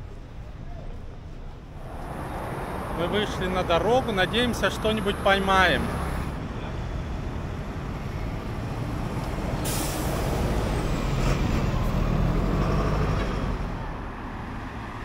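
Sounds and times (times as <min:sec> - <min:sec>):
bus engine passing: 0:01.0 - 0:15.0
air brakes hissing: 0:09.6 - 0:10.5.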